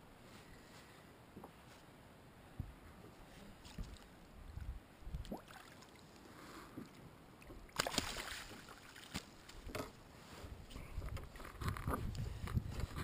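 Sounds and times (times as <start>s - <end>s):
fish splashing into net: 7.7s - 9.2s.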